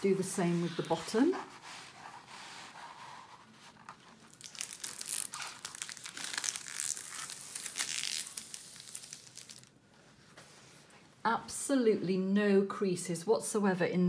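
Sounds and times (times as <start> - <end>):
plastic film crinkling as peeled: 0.7 - 9.8.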